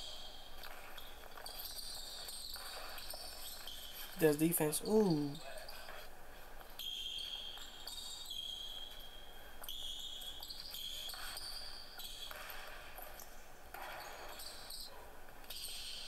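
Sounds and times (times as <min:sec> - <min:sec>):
sneaker squeaks: 0:09.7 - 0:12.8, 0:13.8 - 0:14.9.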